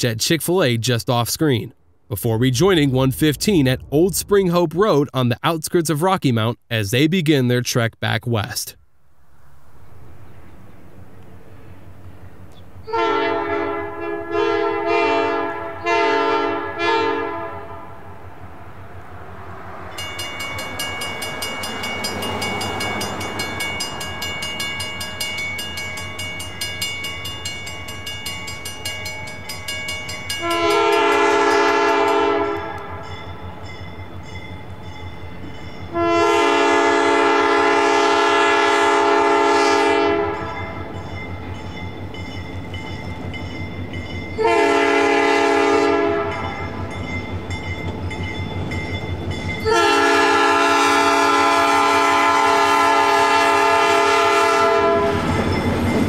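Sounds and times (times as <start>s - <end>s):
locomotive engine rumble: 1.6s - 5.5s
locomotive air horn blasts: 12.9s - 18.1s, 30.4s - 33.1s, 35.9s - 40.9s, 44.4s - 46.7s, 49.6s - 55.2s
bell ringing rapidly: 20.0s - 31.6s.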